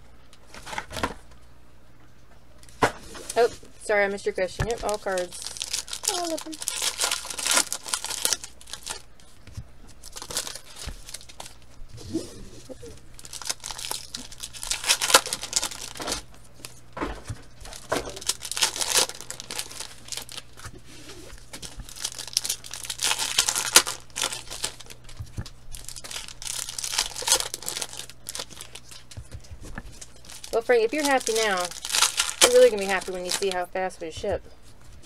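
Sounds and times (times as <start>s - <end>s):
wrappers crinkling: 0.4s - 1.2s, 2.6s - 11.8s, 12.8s - 33.8s
foil packs tearing: 0.5s - 1.2s, 4.6s - 9.1s, 10.0s - 11.7s, 13.2s - 16.8s, 17.6s - 29.2s, 29.9s - 33.7s.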